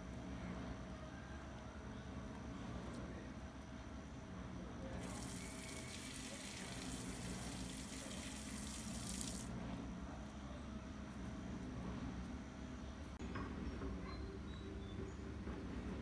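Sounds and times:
water running from a tap: 0:05.0 - 0:09.5.

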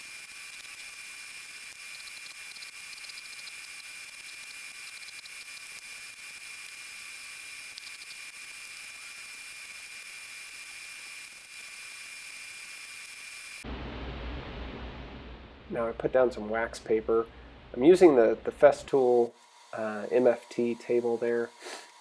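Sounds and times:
steady hiss with high whine: 0:00.0 - 0:22.0
wood rubbing on sandpaper: 0:19.8 - 0:22.0.

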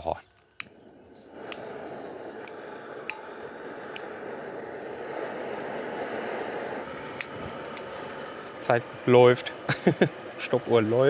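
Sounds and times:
gas burners hissing: 0:00.0 - 0:11.0
stove knob clicks: 0:02.4 - 0:03.2.

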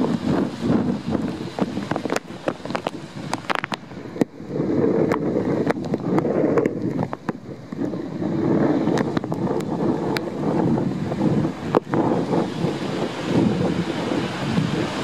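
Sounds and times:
short crackles: 0:00.0 - 0:10.4
waves breaking on rocks: 0:00.0 - 0:15.0
wind buffeting microphone: 0:00.0 - 0:15.0.

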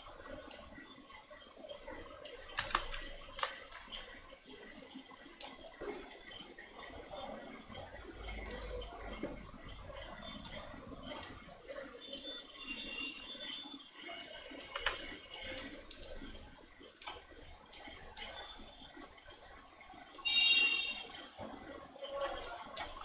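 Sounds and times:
computer mouse clicks: 0:02.1 - 0:04.3, 0:05.4 - 0:12.4, 0:13.4 - 0:13.7, 0:14.4 - 0:16.4, 0:17.0 - 0:18.5, 0:20.1 - 0:21.0, 0:22.0 - 0:23.0.

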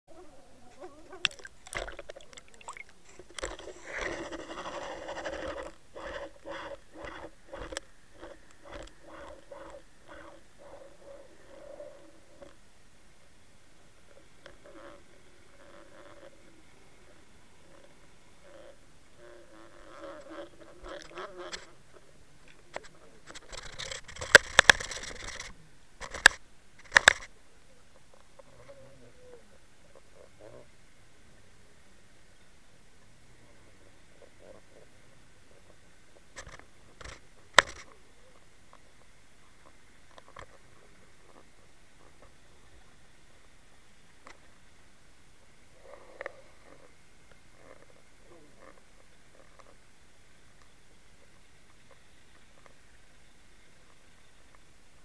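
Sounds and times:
soft underwater pulses: 0:00.1 - 0:12.6
rush of water: 0:01.2 - 0:03.7
sharp knocks and clicks underwater: 0:01.2 - 0:04.8, 0:23.3 - 0:27.3.

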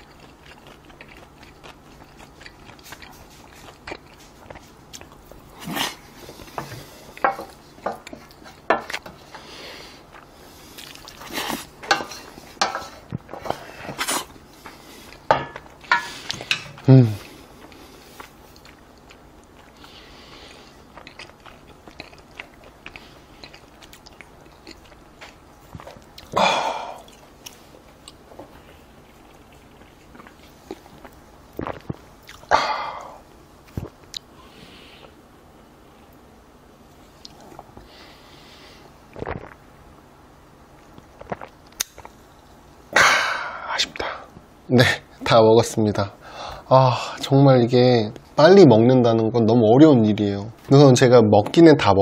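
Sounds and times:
man exhaling breathily: 0:26.3 - 0:27.1, 0:32.5 - 0:33.2.

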